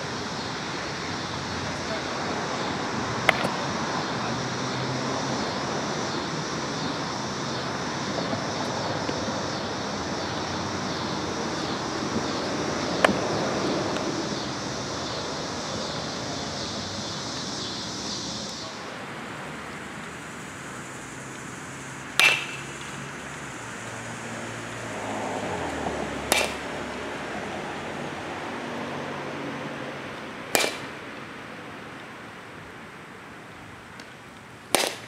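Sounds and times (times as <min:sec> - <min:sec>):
outdoor noise: 0:00.0 - 0:35.0
sharp knocks: 0:22.2 - 0:22.7, 0:26.3 - 0:26.6.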